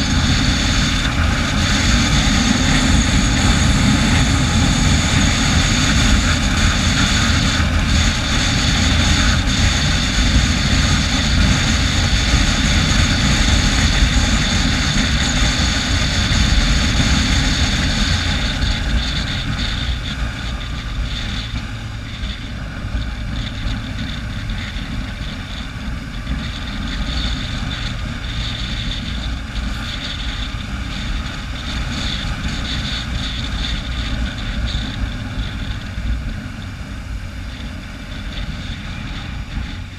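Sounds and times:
vehicle engine drone: 0:00.0 - 0:39.9
wind rush on microphone: 0:00.0 - 0:39.9.

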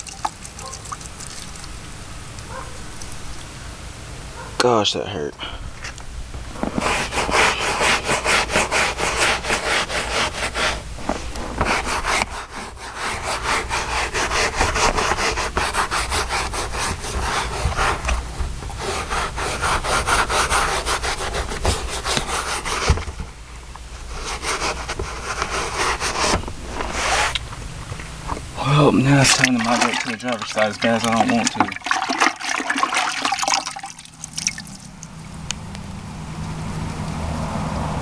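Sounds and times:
stiff brush scrubbing carpet: 0:06.7 - 0:23.1, 0:24.1 - 0:27.4, 0:28.7 - 0:34.0.

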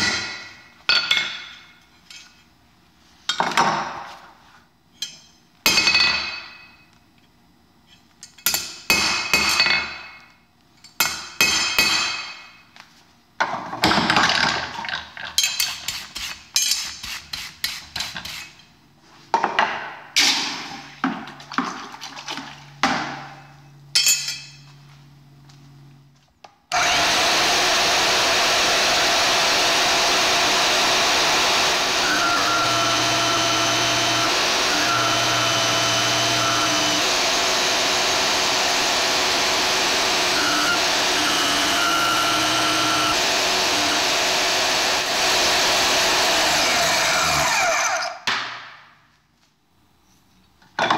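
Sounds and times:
bandsaw running: 0:26.7 - 0:48.2.

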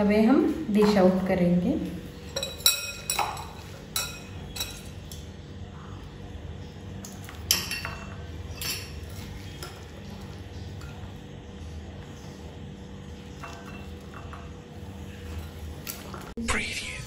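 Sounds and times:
spoon clinking against bowls: 0:02.2 - 0:05.3, 0:07.0 - 0:11.2, 0:13.1 - 0:16.3.

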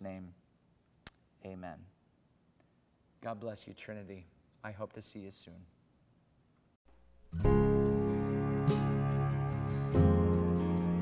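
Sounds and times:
music with ringing chords: 0:07.3 - 0:11.0.

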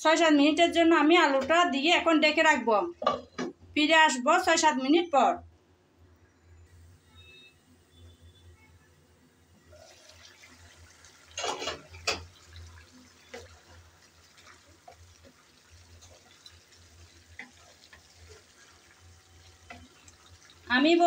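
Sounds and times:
spatula stirring thick curry: 0:11.5 - 0:20.7.

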